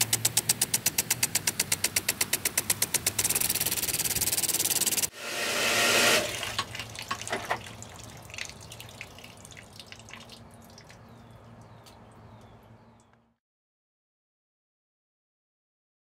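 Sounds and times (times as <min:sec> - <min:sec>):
water splashing: 0:05.7 - 0:12.6
water dripping: 0:06.3 - 0:13.2.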